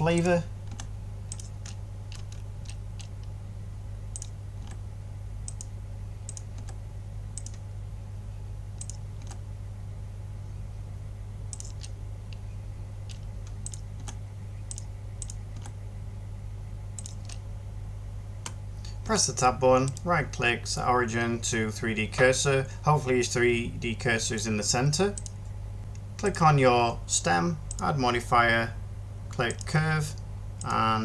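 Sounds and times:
steady low hum: 0.0s - 31.0s
keyboard key presses: 0.2s - 3.4s, 7.4s - 7.6s, 8.8s - 9.4s, 11.5s - 12.4s, 13.1s - 15.8s, 17.0s - 17.4s
mouse clicks: 0.2s - 3.4s, 4.1s - 4.8s, 5.5s - 5.7s, 6.3s - 6.8s, 7.4s - 7.6s, 8.8s - 9.4s, 11.5s - 12.4s, 13.1s - 15.8s, 17.0s - 17.4s, 25.2s - 26.3s.

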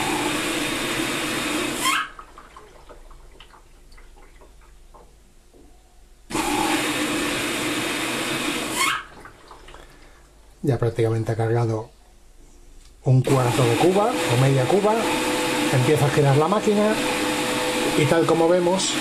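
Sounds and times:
water rushing into washing machine: 0.0s - 5.1s, 6.3s - 10.2s, 13.2s - 19.0s.

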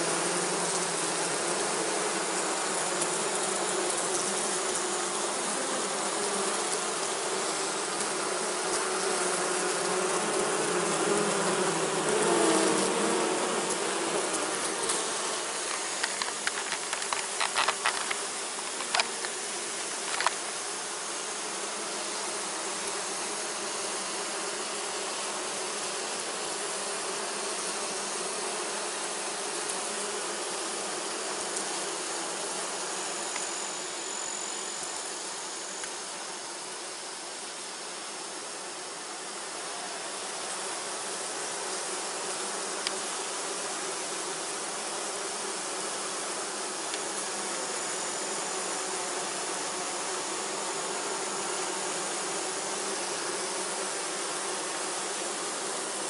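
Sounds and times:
bees buzzing: 0.0s - 56.0s
sharp clicks: 15.7s - 19.4s.

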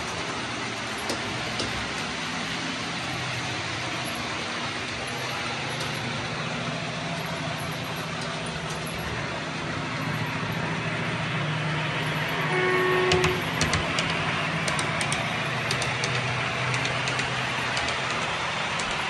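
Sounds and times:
model train engine drone: 0.0s - 19.0s
train horn: 12.3s - 13.8s.

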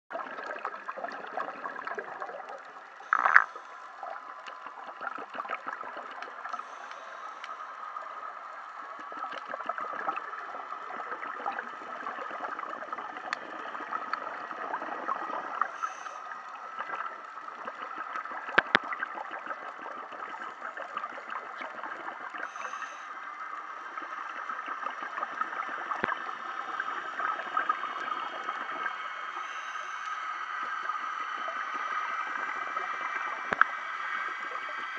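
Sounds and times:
underwater hiss and crackle: 0.1s - 34.9s.

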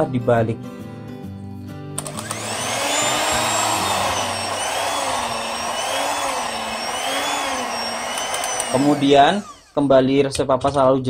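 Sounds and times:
electric hand mixer whining: 2.0s - 9.9s.

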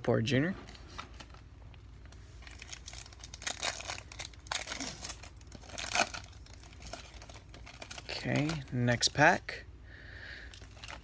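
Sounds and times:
foil wrapper crinkling and tearing: 2.4s - 9.1s, 10.4s - 11.0s.

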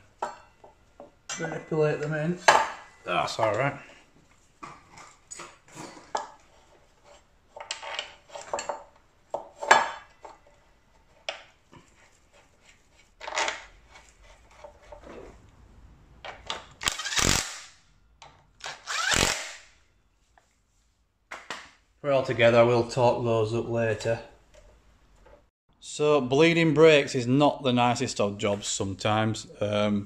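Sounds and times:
cordless drill running: 18.8s - 19.4s.

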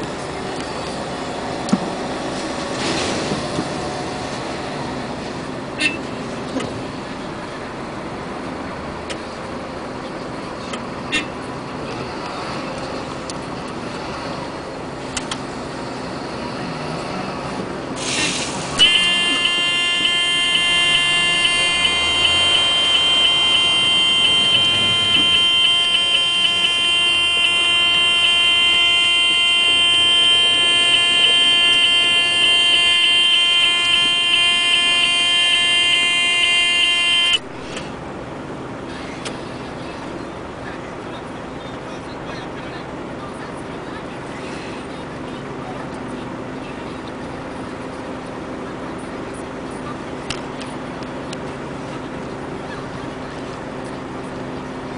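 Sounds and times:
truck engine running: 0.0s - 54.9s
electronic warning buzzer: 18.8s - 37.8s.

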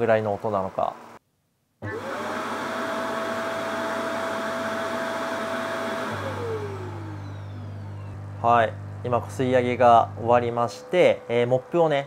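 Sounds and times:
vacuum motor rushing and whining: 1.8s - 12.0s
low motor hum: 2.9s - 12.0s.

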